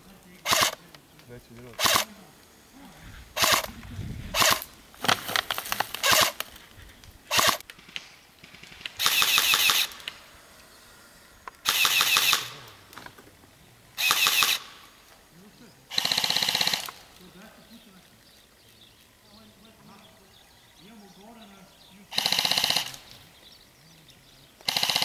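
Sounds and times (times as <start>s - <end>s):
full-auto bursts: 0.0s - 6.6s, 7.2s - 17.9s, 20.8s - 23.6s, 24.5s - 25.0s
airsoft rifle shots: 0.4s - 2.3s, 3.3s - 6.5s, 7.3s - 10.4s, 11.4s - 13.1s, 14.0s - 15.0s, 15.9s - 17.4s, 22.1s - 23.2s, 24.6s - 25.0s.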